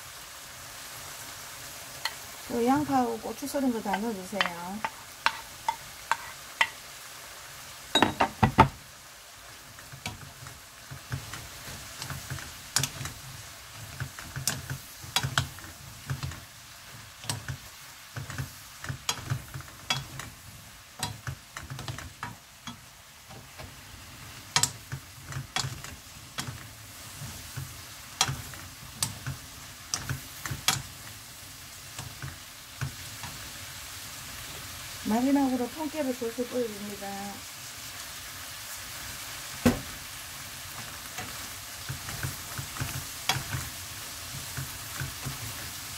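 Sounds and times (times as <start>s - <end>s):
vegetables sizzling in frying pan: 0.0s - 45.9s
wooden spatula scraping pan: 3.8s - 6.4s.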